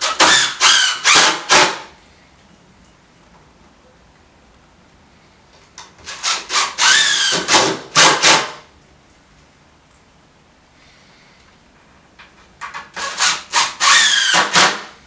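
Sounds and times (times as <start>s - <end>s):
cordless drill driving screw: 6.1s - 8.3s, 13.0s - 14.8s.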